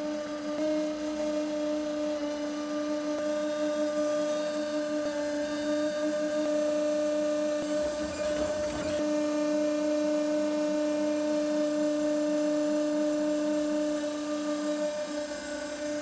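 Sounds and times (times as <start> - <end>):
hydraulic system whining: 4.0 - 9.1.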